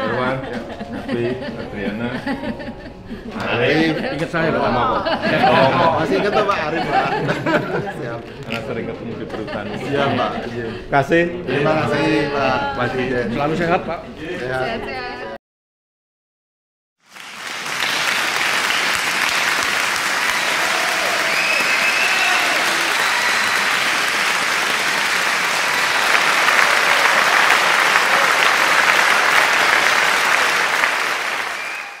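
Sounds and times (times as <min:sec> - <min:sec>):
large audience applauding: 0:17.0 - 0:32.0.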